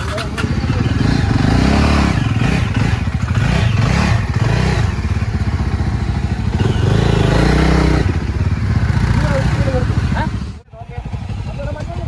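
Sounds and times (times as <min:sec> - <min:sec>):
motorcycle clattering over rough ground: 0:00.0 - 0:03.5
motorcycle engine revving: 0:00.0 - 0:12.0.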